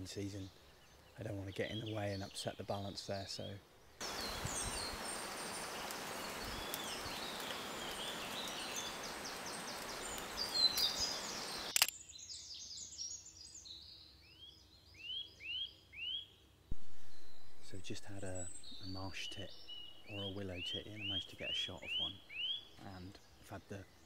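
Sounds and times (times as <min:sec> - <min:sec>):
steady hiss: 0:00.0 - 0:11.8, 0:16.7 - 0:23.9
songbirds singing and calling: 0:00.0 - 0:24.0
loud rising bird notes: 0:15.0 - 0:22.9.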